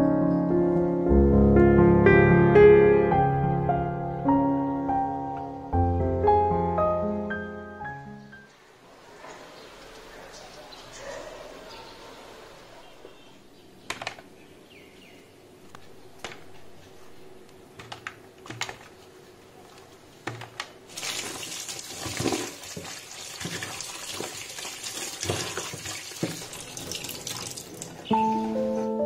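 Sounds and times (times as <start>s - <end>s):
tap running into metal sink: 25.2s - 27.6s.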